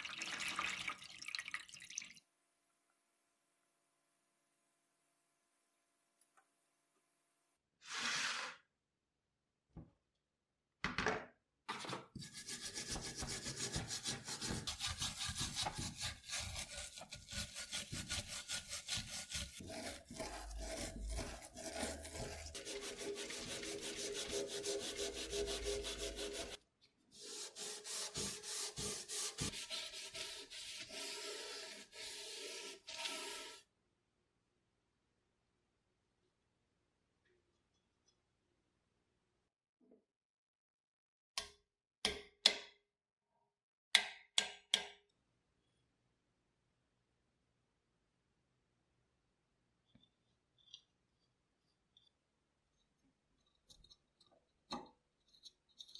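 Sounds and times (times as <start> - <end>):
wire brush scrubbing metal: 14.8 - 26.6.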